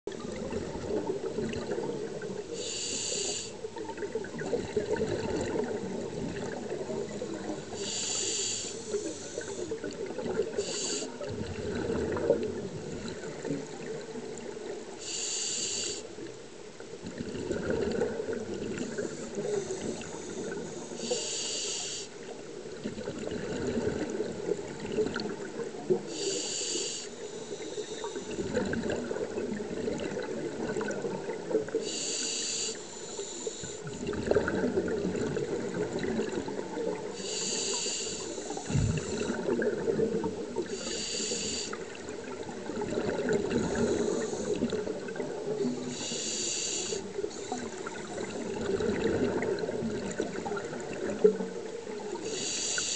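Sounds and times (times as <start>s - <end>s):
exhaled bubbles rumbling: 0.1s - 2.6s, 3.6s - 7.9s, 8.9s - 14.9s, 16.9s - 20.9s, 22.3s - 26.1s, 28.0s - 31.8s, 33.8s - 37.2s, 38.4s - 40.9s, 41.8s - 46.0s, 47.1s - 52.2s
regulator hissing inhalation: 2.6s - 3.6s, 7.7s - 9.8s, 10.6s - 11.2s, 15.0s - 16.1s, 19.2s - 22.2s, 26.1s - 28.4s, 31.8s - 33.8s, 37.1s - 39.4s, 40.7s - 41.8s, 43.6s - 44.7s, 45.8s - 47.7s, 52.2s - 52.9s.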